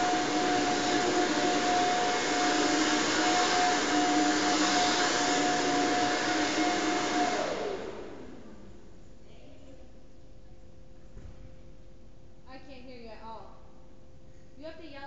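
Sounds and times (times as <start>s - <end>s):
electric blower whirring: 0.0s - 8.9s.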